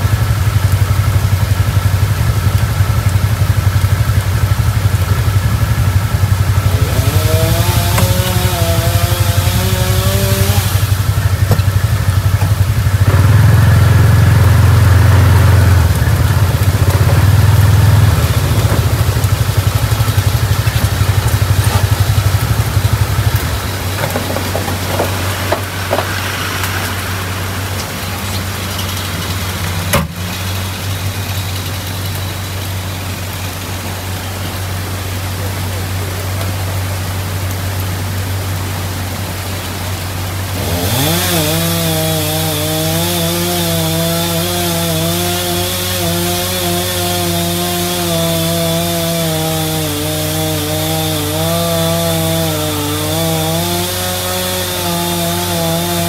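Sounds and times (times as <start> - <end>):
utility vehicle engine idling: 0.0 - 41.2.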